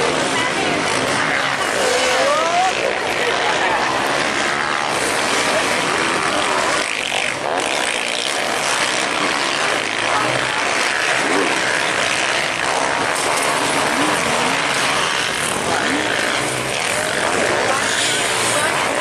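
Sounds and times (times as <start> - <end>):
motocross bikes revving: 0.0 - 19.0.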